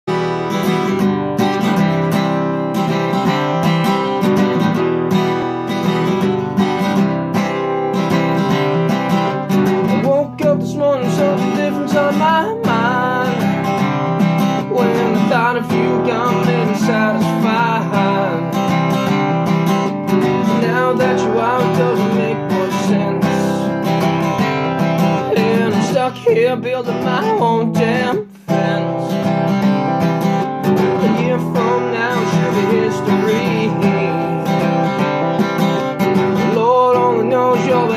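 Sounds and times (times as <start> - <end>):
acoustic guitar strumming: 0.0 - 37.9
person singing: 9.5 - 37.9.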